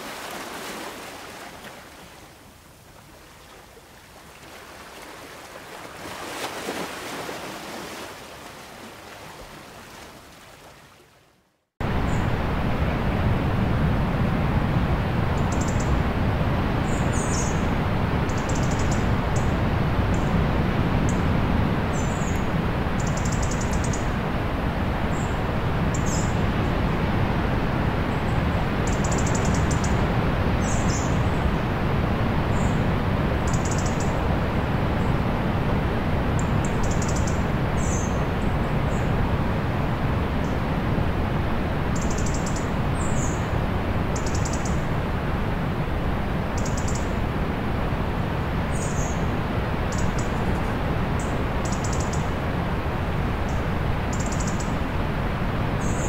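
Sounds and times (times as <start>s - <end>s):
sea surf rushing: 0.0s - 10.7s
bird chirps and trills: 36.4s - 39.1s, 42.0s - 43.5s, 48.7s - 49.2s.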